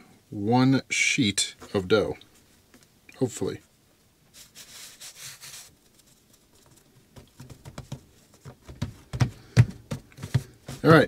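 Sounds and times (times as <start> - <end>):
hands rubbing dough: 4.3 - 11.0
hands patting dough: 6.7 - 11.0.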